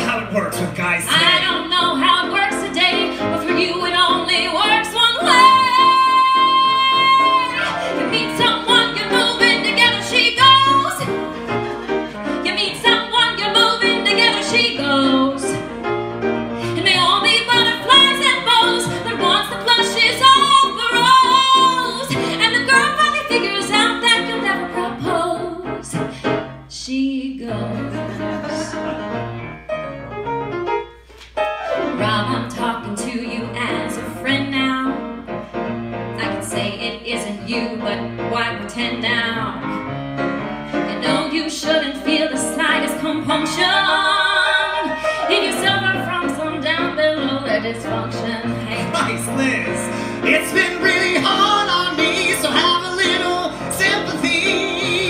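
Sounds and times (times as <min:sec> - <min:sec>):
grand piano accompaniment: 0:00.0 - 0:55.0
woman singing with vibrato: 0:01.1 - 0:11.4, 0:12.3 - 0:15.6, 0:16.7 - 0:26.1, 0:26.7 - 0:28.7, 0:40.9 - 0:55.0.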